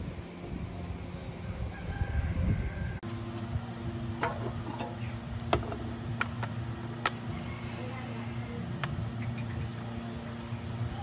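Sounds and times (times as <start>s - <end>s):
wind on microphone: 0.0s - 4.0s
steady low hum: 0.0s - 11.0s.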